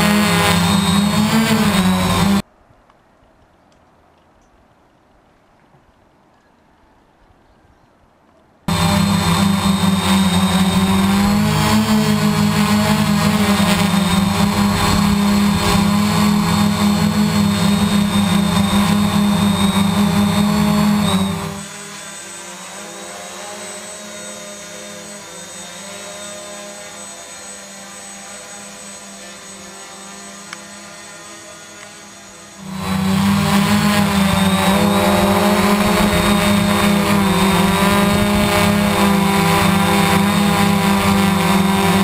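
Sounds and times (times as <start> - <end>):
quadcopter buzzing: 0.0 - 2.4, 8.7 - 42.0.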